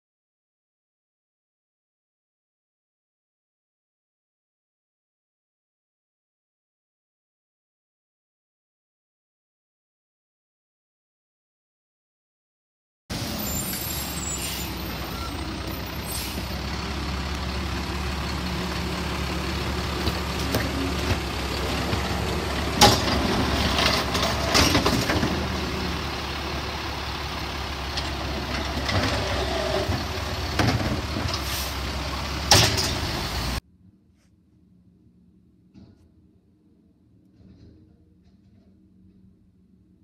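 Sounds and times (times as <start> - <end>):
garbage truck engine running: 13.1 - 33.6
metal clanks of arm and cart: 22.8 - 25.4, 32.5 - 33.1.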